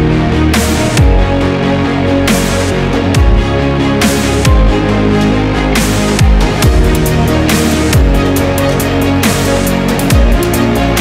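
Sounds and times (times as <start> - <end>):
electronic dance music: 2.2 - 11.0.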